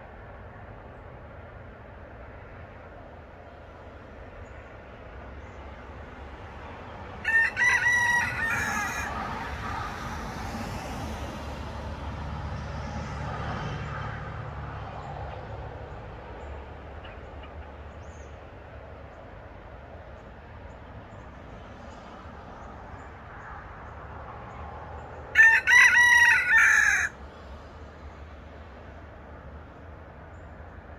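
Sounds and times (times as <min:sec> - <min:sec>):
rooster crowing: 0:07.2 - 0:09.7, 0:25.3 - 0:27.2.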